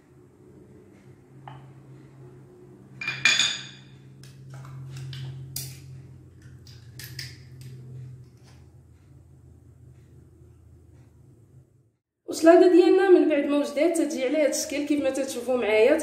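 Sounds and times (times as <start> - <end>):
cutlery and dishes clinking: 3.0 - 3.9.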